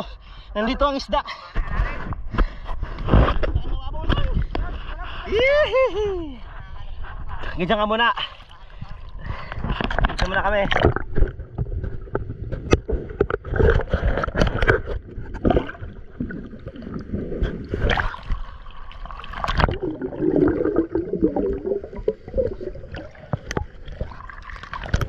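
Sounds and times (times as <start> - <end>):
water splashing and gurgling: 8.2 - 25.0.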